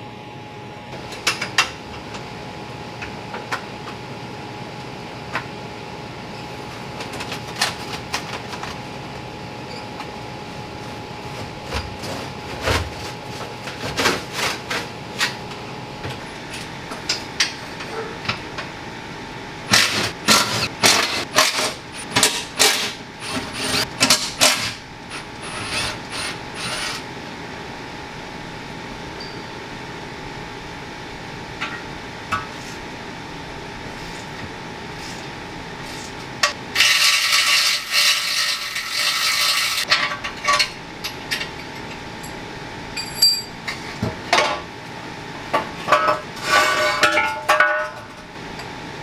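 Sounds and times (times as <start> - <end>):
metal clinks and knocks: 43.0 - 43.5.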